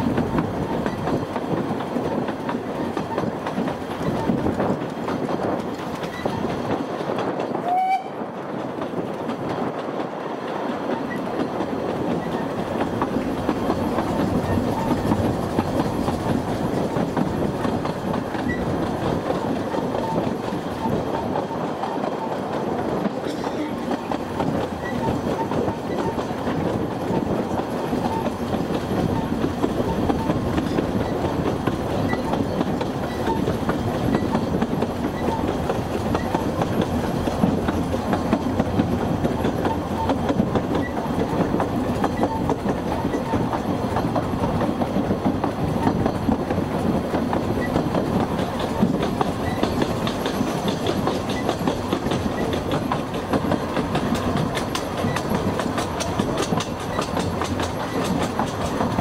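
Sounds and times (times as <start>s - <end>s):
train wheels rumbling on rails: 0.0s - 59.0s
light rail clicks: 0.1s - 59.0s.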